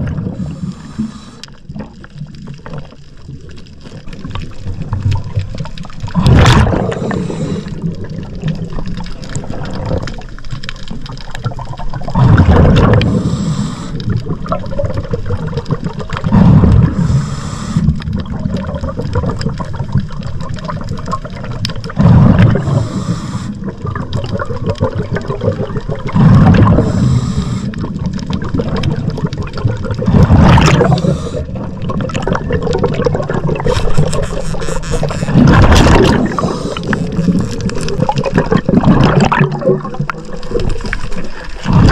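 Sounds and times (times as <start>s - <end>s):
exhaled bubbles rushing: 0.0s - 41.9s
regulator hiss: 13.1s - 14.0s, 17.0s - 17.9s.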